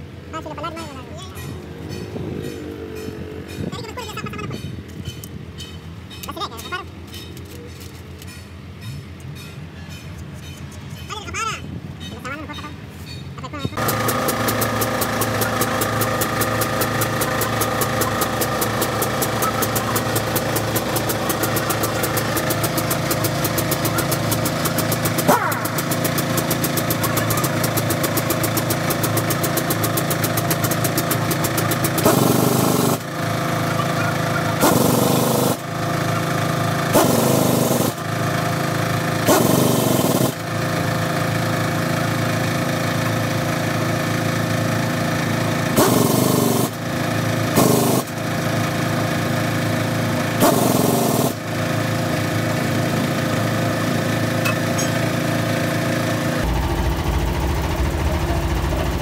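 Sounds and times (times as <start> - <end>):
engine running steadily: 0.0 - 59.0
loud noisy bursts: 13.8 - 59.0.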